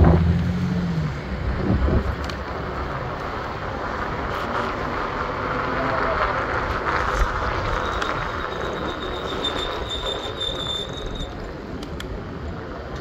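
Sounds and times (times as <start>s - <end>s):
street traffic rumbling: 0.0s - 13.0s
high thin squeal: 7.6s - 11.5s.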